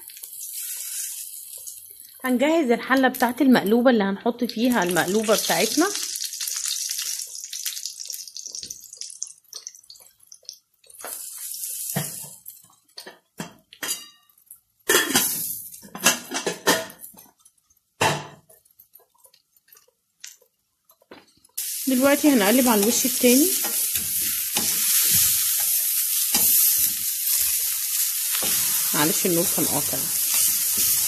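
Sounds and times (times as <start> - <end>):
slices sizzling in oil: 0.0 - 3.4, 4.4 - 16.3, 17.0 - 31.0
pots and dishes clinking: 11.9 - 17.4.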